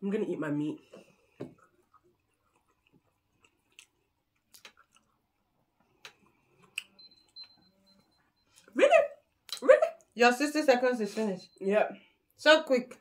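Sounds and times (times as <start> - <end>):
people chewing: 0.9 - 10.2.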